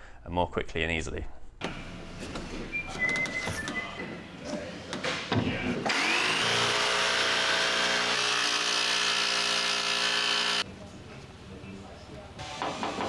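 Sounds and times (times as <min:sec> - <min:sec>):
jigsaw motor whining: 0:05.9 - 0:10.6.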